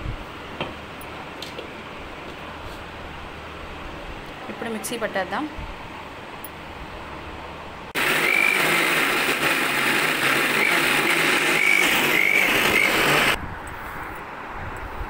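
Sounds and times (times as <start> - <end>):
mixer grinder running: 8.0 - 13.4.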